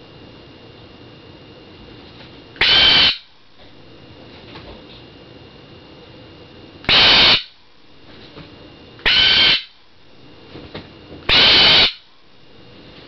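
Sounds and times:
bird squawking: 2.6 - 3.3, 6.9 - 7.6, 9.0 - 9.8, 11.3 - 12.1.

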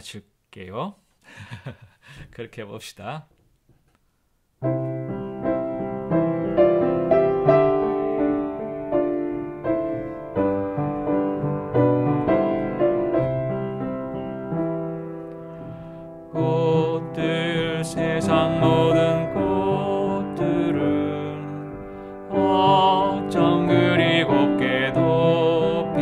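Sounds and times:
piano accompaniment: 4.6 - 26.0.

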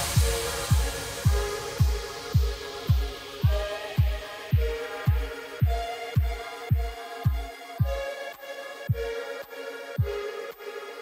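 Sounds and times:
kick drum beat: 0.0 - 8.1, 8.9 - 9.2.

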